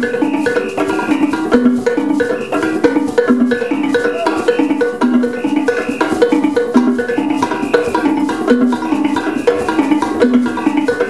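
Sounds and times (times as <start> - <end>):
hand drums: 0.0 - 11.0
wooden xylophones playing: 0.0 - 11.0.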